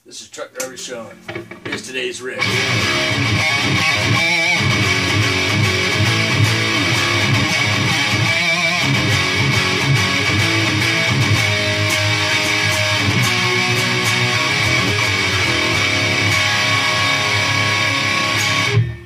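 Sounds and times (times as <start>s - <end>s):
distorted electric guitar riff: 0.9s - 19.0s.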